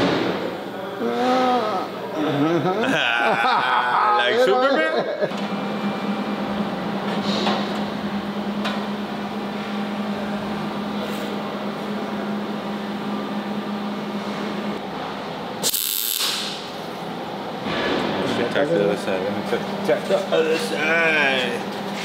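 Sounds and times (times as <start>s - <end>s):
shop machinery hum: 0.0s - 22.0s
welding arc crackle: 15.6s - 16.7s.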